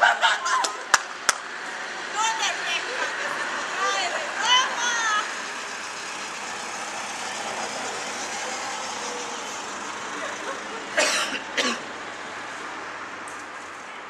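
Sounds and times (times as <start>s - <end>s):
street noise hiss: 0.0s - 14.0s
person coughing: 11.0s - 11.8s.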